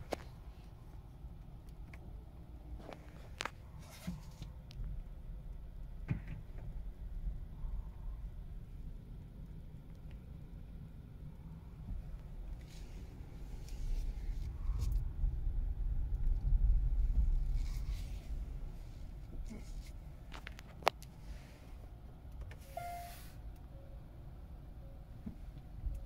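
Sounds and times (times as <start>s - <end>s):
low rumble in car cabin: 0.0s - 26.0s
short hiss: 22.6s - 23.4s
brief electronic tone: 22.7s - 23.9s.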